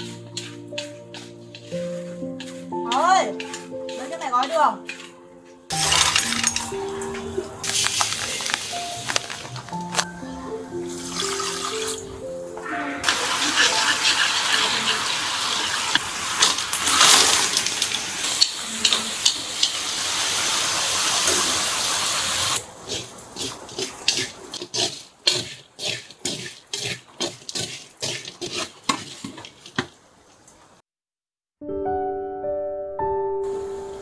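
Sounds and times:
water running: 5.7 - 30.8.

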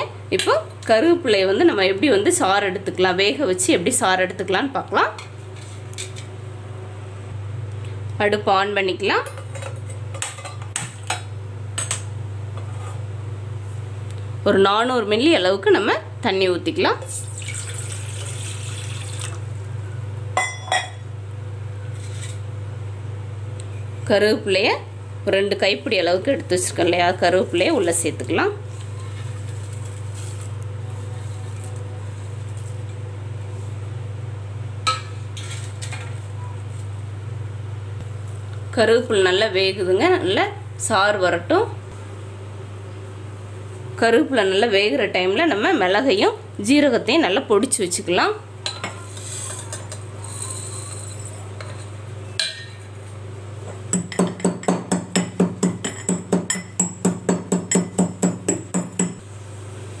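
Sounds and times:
steel kitchenware clink: 20.4 - 21.0
pestle pounding in metal mortar: 54.0 - 59.2.

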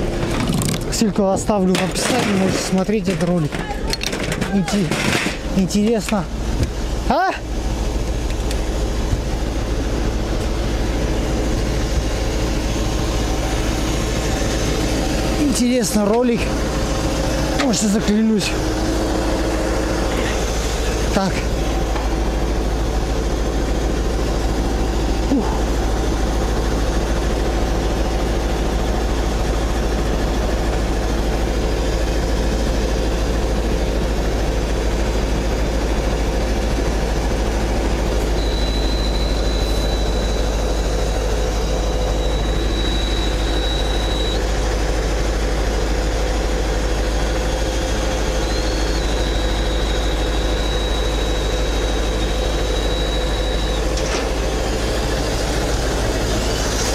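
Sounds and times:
truck engine and road drone: 0.0 - 56.9
faint high whistle: 38.3 - 44.4, 48.2 - 54.0.

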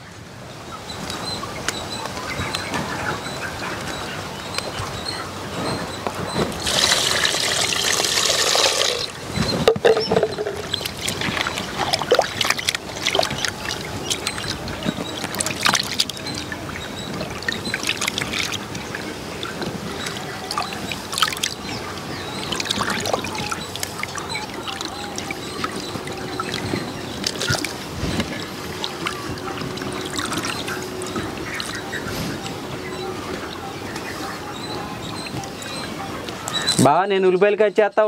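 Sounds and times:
water pouring into a pot: 6.6 - 9.2
hands washing prawns splashing: 9.8 - 16.6, 17.2 - 18.9, 22.4 - 30.8.

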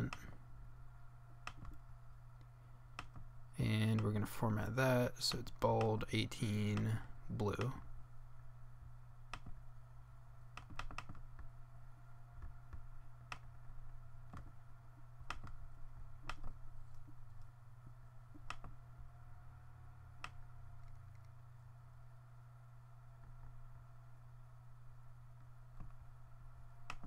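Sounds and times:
steady low hum: 0.0 - 27.0
mouse and keyboard clicks: 1.5 - 1.8, 10.6 - 11.3, 15.2 - 15.6, 16.2 - 17.5, 18.3 - 18.8.

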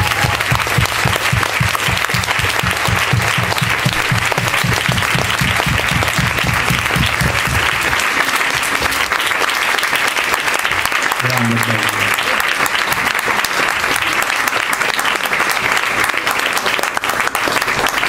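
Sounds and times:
audience applause: 0.0 - 18.0
regular low thumping: 0.2 - 7.9.

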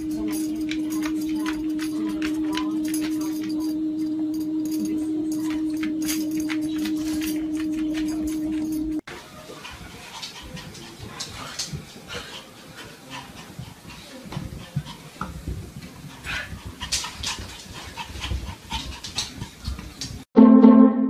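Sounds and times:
dog breathing heavily: 9.4 - 20.0.

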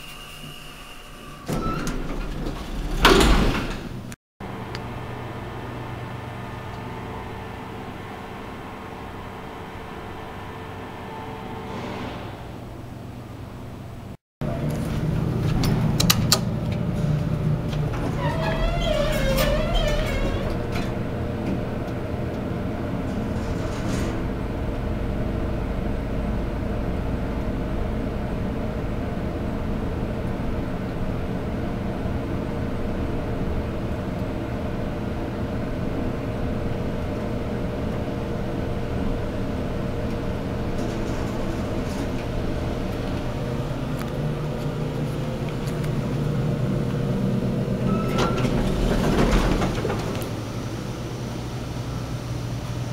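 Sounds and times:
elevator hum and rumble: 0.0 - 52.9
rushing noise: 8.0 - 13.3.

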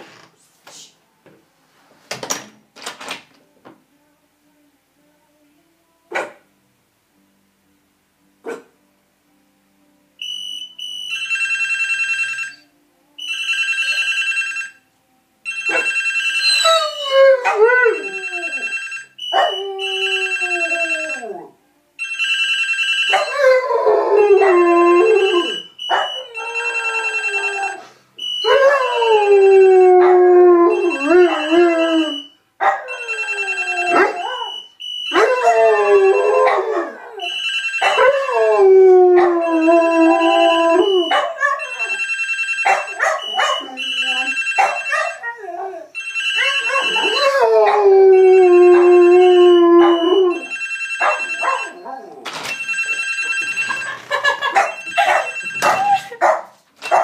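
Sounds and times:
phone ringing: 10.2 - 14.8, 15.4 - 16.8, 17.9 - 21.4, 22.0 - 29.9, 30.7 - 38.8, 39.4 - 45.4, 46.0 - 56.1
dog howling: 35.2 - 37.3, 37.9 - 41.8, 45.0 - 52.2.

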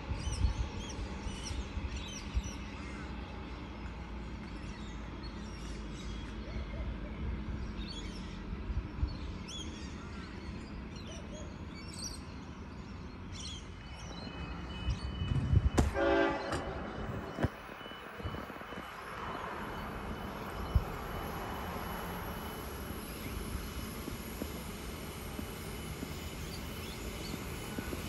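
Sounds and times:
train rumbling: 11.6 - 28.0
train horn: 15.8 - 17.1.

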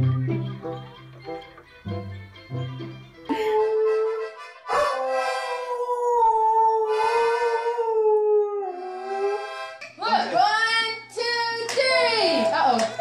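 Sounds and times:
toy accordion: 0.0 - 5.7, 6.9 - 7.8, 8.8 - 10.0
dog howling: 3.8 - 8.9.

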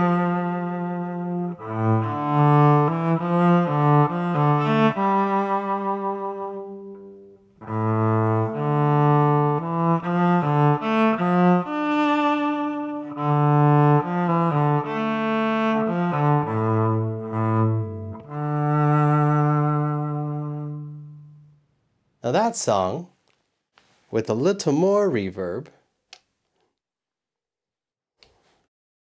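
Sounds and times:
bowed electric cello melody: 0.0 - 21.6.

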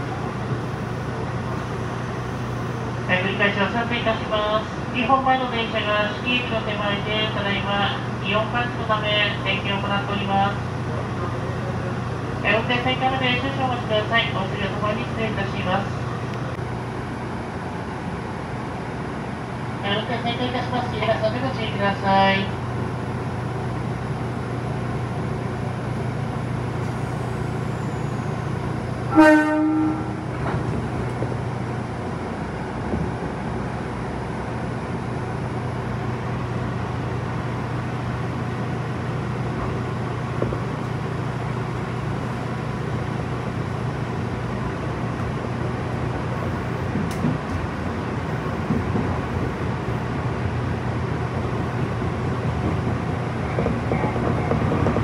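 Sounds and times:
train low hum: 0.0 - 55.0
train running noise: 0.0 - 55.0
train horn blast: 29.1 - 30.3.

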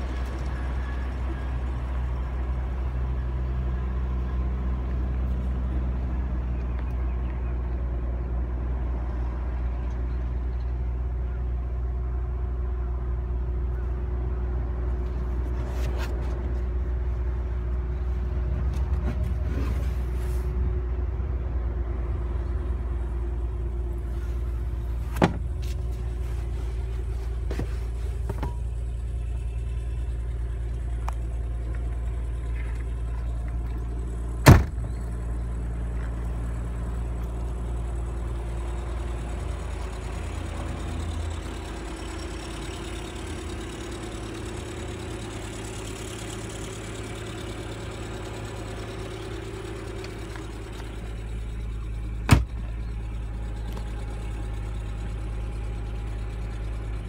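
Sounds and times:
car engine idling: 0.0 - 57.0
loud thump: 25.1 - 25.6, 34.4 - 35.0, 52.3 - 52.6.

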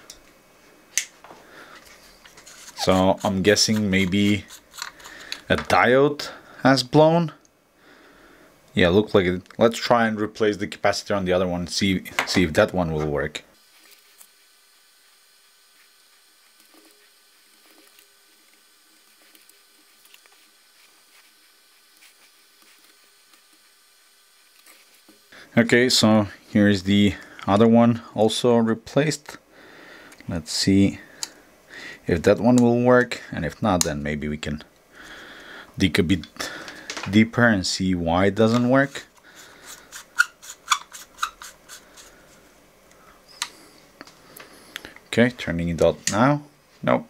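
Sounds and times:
low steady hiss: 0.0 - 47.0
bulb base scraping clicks: 2.2 - 5.8.

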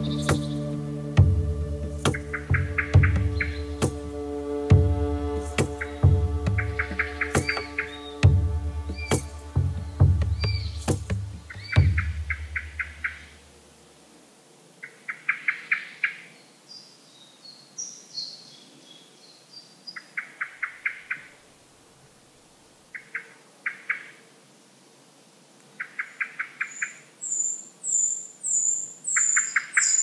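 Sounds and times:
bird calling short notes: 1.8 - 13.3.

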